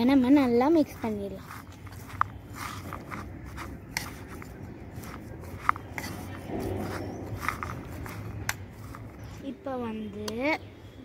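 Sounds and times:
spoon stirring food in bowl: 0.8s - 9.4s.

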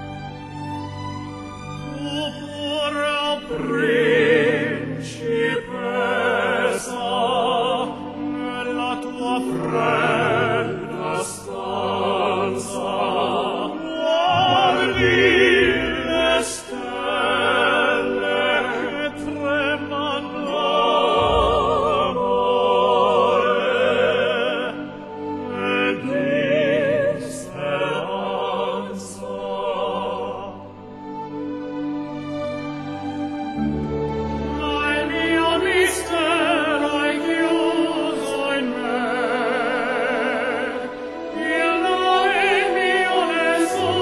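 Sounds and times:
opera singing: 1.8s - 30.8s, 34.5s - 44.0s
instrumental accompaniment: 13.8s - 27.8s.

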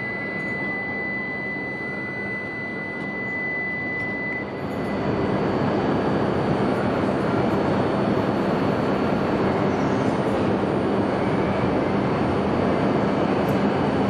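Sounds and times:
high-pitched warning tone: 0.0s - 5.7s
train running hum: 0.0s - 14.0s.

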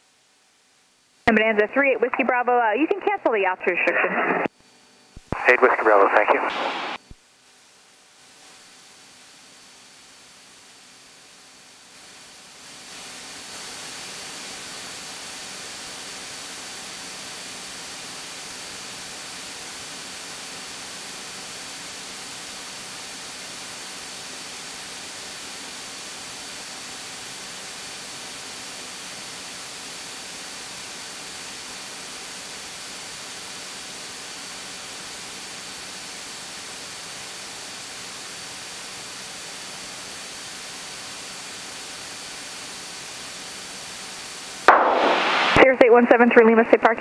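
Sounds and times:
headset radio hiss: 1.3s - 4.5s, 5.2s - 7.1s, 44.6s - 47.0s.

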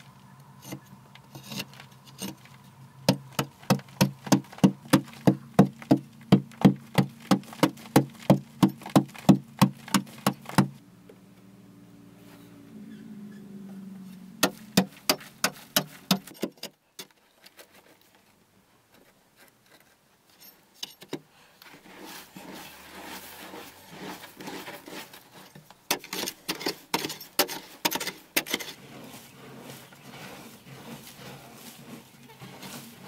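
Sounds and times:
scraping: 0.0s - 10.8s, 12.2s - 33.0s
hand tool striking earth wall: 0.6s - 10.8s, 14.4s - 16.7s, 25.8s - 33.0s.

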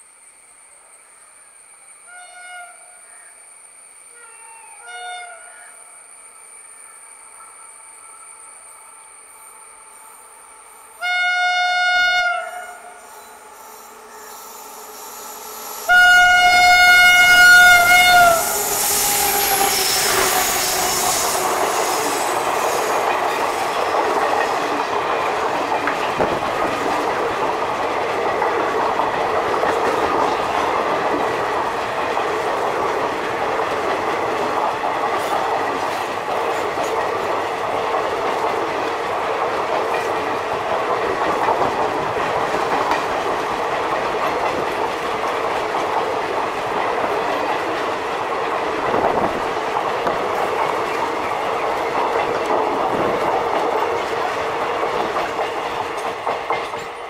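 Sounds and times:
train passing with rumble: 5.8s - 57.0s
wheels clacking over rail joints: 16.0s - 57.0s.

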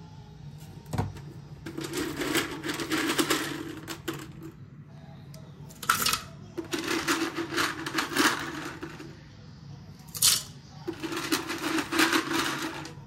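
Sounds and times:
dry pasta rattling into metal bowl: 1.7s - 4.5s, 5.8s - 9.2s, 10.1s - 13.0s.

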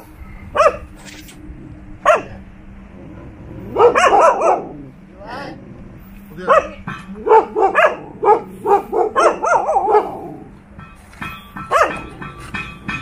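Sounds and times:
dog barking sharply: 3.8s - 4.7s, 6.5s - 10.4s.

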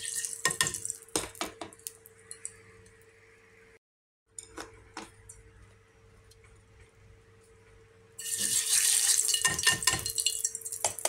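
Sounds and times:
fish sizzling in hot oil: 8.2s - 10.9s.

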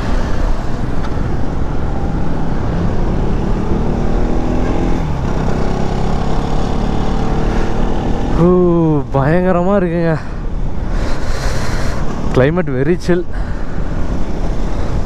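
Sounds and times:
wind rush on microphone: 13.3s - 15.0s.

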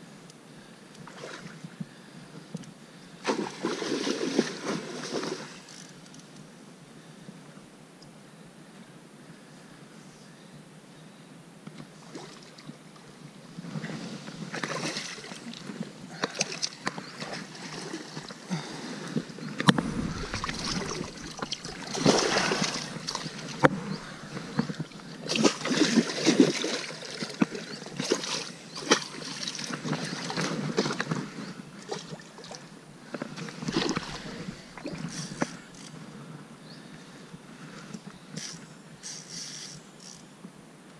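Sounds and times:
water splashing: 19.7s - 27.3s, 33.6s - 35.4s.

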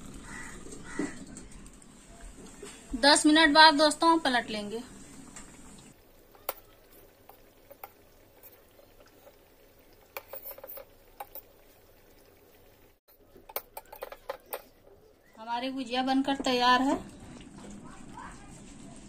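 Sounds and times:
spoon clinking against a metal pot: 10.1s - 11.5s, 13.4s - 14.8s.

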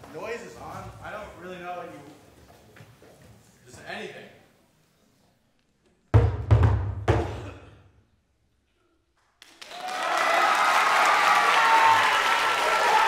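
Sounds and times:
audience applause: 9.4s - 13.0s.

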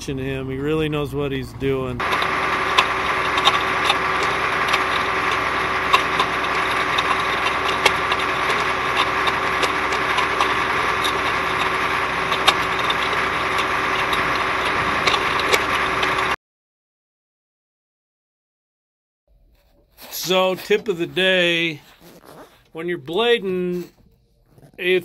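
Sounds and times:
motor grader engine running: 0.0s - 16.4s
rocks crackling under tire: 2.0s - 16.4s.

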